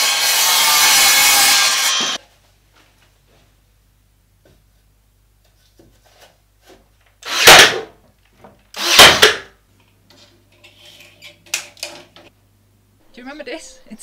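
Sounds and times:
nail gun firing: 0:07.3 - 0:07.9, 0:08.8 - 0:09.5.

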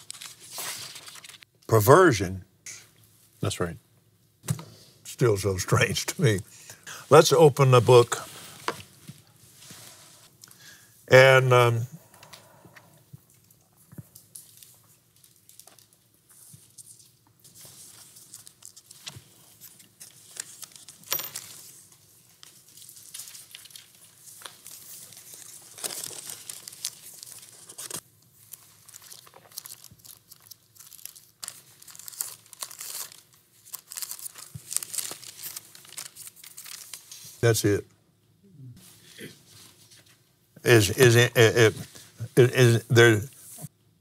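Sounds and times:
thin pages rustling: 0:00.0 - 0:01.5, 0:14.0 - 0:37.4.

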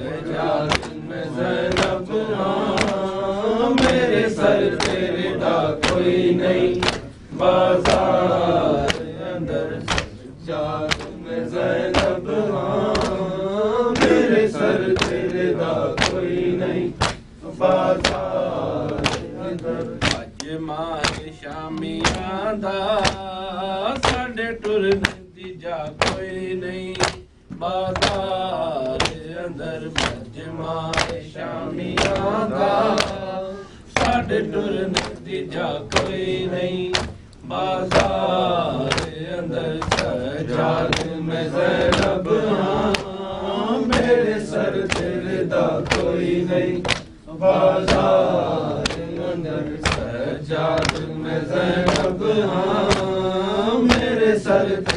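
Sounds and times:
rhythmic chest-beating: 0:00.0 - 0:54.9
man chanting lament: 0:16.8 - 0:54.9.

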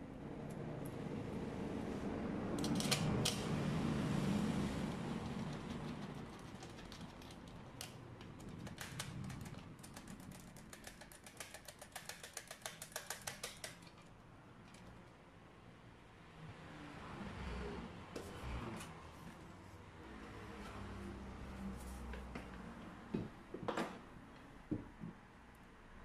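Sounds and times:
small sharp metallic clicks: 0:06.6 - 0:15.0.

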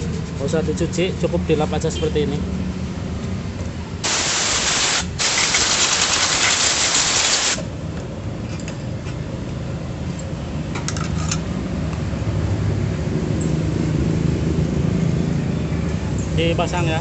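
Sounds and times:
pressurised air nozzle hissing: 0:04.0 - 0:07.7.

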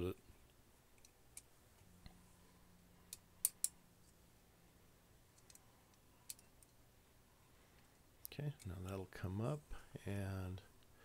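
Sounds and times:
metal clicks and taps: 0:03.1 - 0:03.8, 0:05.4 - 0:06.8.

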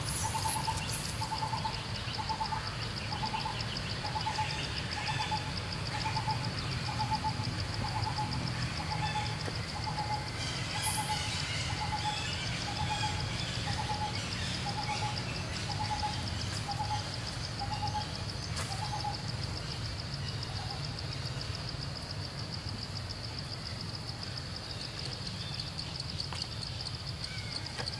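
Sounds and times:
high insect buzz: 0:00.0 - 0:19.9.

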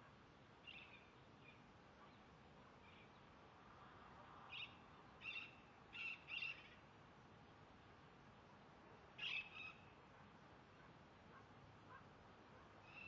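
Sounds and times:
low steady hiss: 0:00.0 - 0:13.0
faint bird calls: 0:04.5 - 0:06.8, 0:09.2 - 0:13.0.

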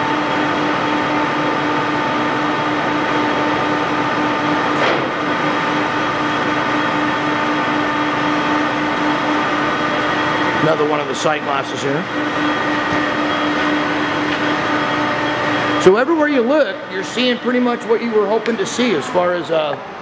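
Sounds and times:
engine lathe gear whine and hum: 0:00.0 - 0:20.0.

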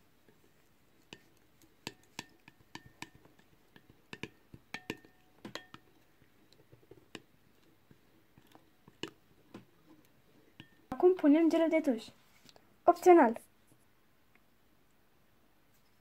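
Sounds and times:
spoon clinking on glass bowl: 0:03.8 - 0:06.0.

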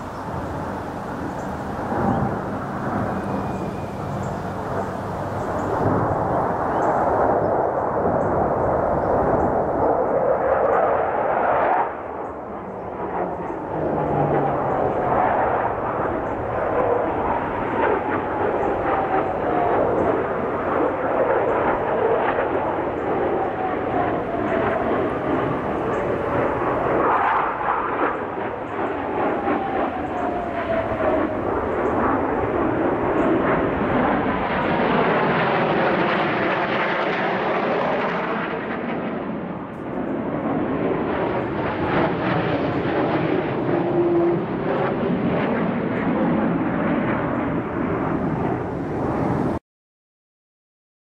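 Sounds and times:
falling jet whine: 0:00.0 - 0:08.2, 0:21.6 - 0:39.7
jet aircraft flying overhead: 0:00.0 - 0:49.6.

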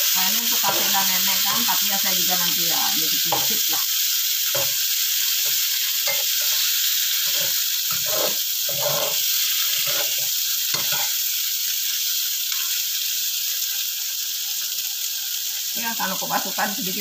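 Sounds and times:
food sizzling in hot oil: 0:00.0 - 0:17.0
metal spatula scraping wok: 0:00.5 - 0:01.8, 0:05.4 - 0:11.2.

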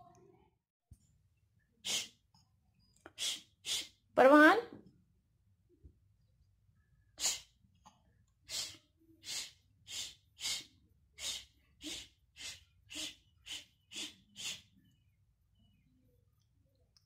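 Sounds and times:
short breathy huffs: 0:01.8 - 0:02.3, 0:03.1 - 0:04.0, 0:07.2 - 0:07.6, 0:08.4 - 0:14.8.

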